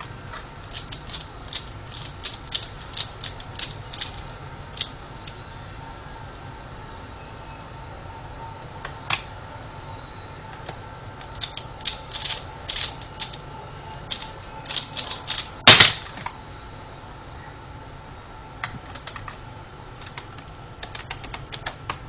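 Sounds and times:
plastic puzzle clicking: 0.6s - 5.4s, 11.2s - 13.4s, 14.1s - 16.0s.

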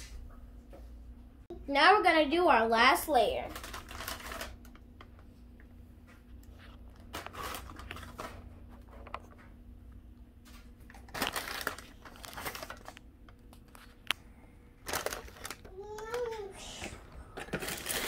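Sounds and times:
plastic bag crinkling: 3.5s - 4.8s, 6.9s - 8.5s, 10.9s - 13.0s, 14.8s - 16.2s, 17.4s - 18.0s.

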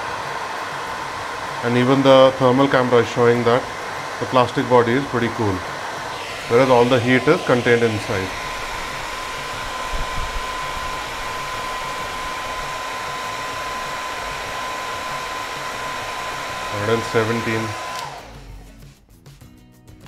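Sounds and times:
hair dryer running: 0.0s - 18.8s.

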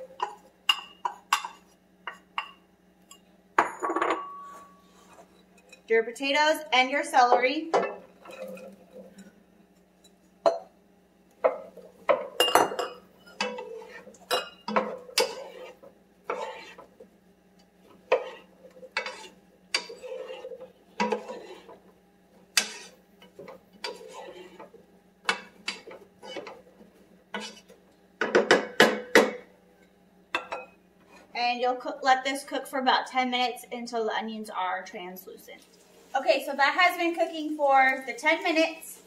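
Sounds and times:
faint steady hum: 0.0s - 39.0s
spatula scraping and knocking saucepan: 13.2s - 17.0s, 18.0s - 21.8s, 22.5s - 26.7s, 27.3s - 29.5s.

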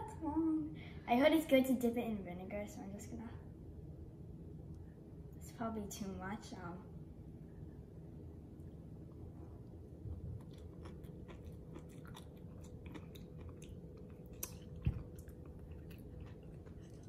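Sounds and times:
person chewing: 9.2s - 17.0s.

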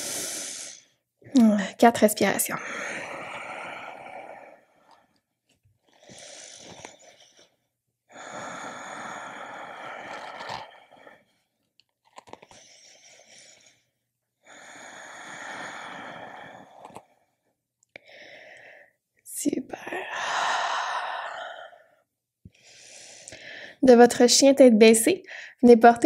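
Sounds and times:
slow deep breathing: 2.6s - 11.6s, 12.4s - 19.0s, 19.9s - 23.8s.

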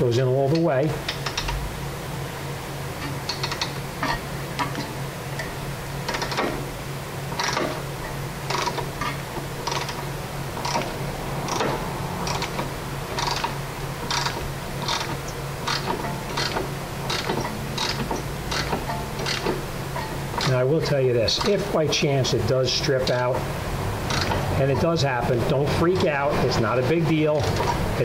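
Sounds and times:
steady low hum: 0.0s - 28.0s
ratcheting wrench clicking: 1.1s - 1.6s, 3.2s - 4.8s, 6.1s - 6.6s, 7.4s - 7.8s, 8.5s - 10.0s, 10.6s - 10.9s, 11.5s - 19.6s, 24.1s - 24.4s.

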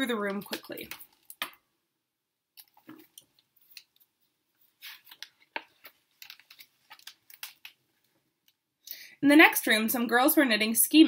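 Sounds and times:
book pages turning: 2.6s - 8.2s.

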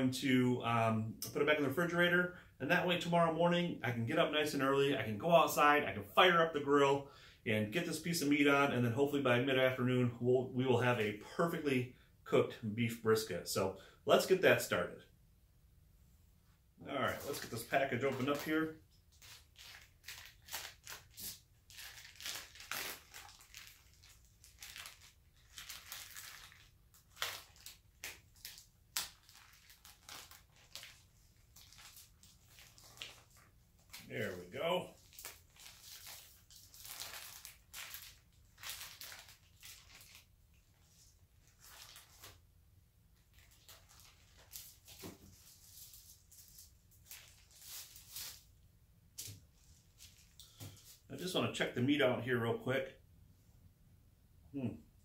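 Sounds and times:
plastic packaging crinkling: 17.0s - 42.4s, 43.2s - 48.5s.

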